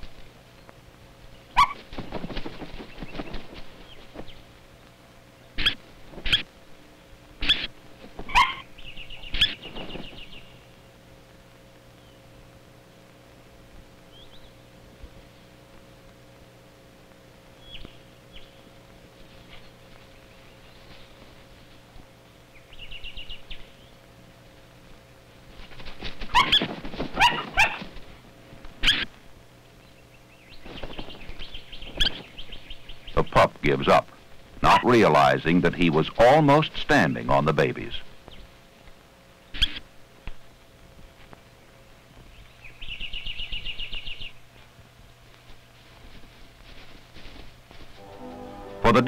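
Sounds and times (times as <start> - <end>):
harsh yelping calls: 1.5 - 1.9, 5.6 - 6.5, 7.4 - 9.8, 26.2 - 27.9, 28.8 - 29.2, 34.6 - 36.3, 39.5 - 39.9
fast rattling bird chatter: 1.5 - 4.5, 5.6 - 6.5, 7.4 - 10.7, 25.5 - 28.2, 30.1 - 33.9
plover screeching calls: 5.6 - 6.5, 7.4 - 7.7.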